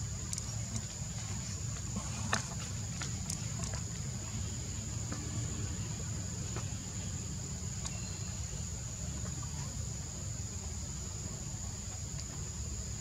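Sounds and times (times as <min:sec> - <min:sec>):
insects trilling: 0:00.0 - 0:13.0
low steady rumble: 0:00.0 - 0:13.0
faint ticks: 0:00.2 - 0:04.0.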